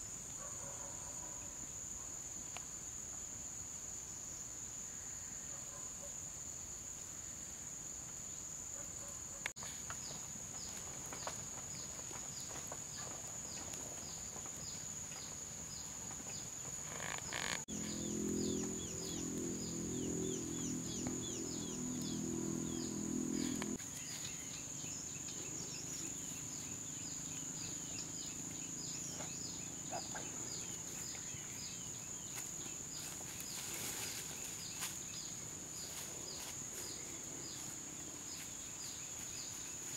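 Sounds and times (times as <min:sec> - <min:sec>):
insect chirps: 0:00.0 - 0:39.9
insects droning: 0:00.0 - 0:39.9
low hum: 0:17.7 - 0:23.8.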